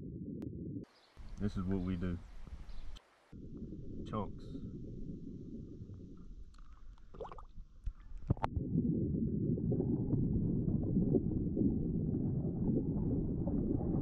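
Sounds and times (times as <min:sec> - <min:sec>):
muffled underwater river rumbling: 0:00.0 - 0:14.0
water splashes: 0:03.0 - 0:14.0.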